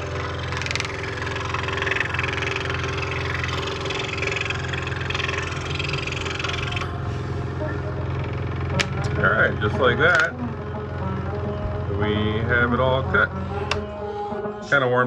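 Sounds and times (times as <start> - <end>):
saw blade rasping through wood: 0.0 - 6.9
scroll saw motor hum: 0.0 - 14.0.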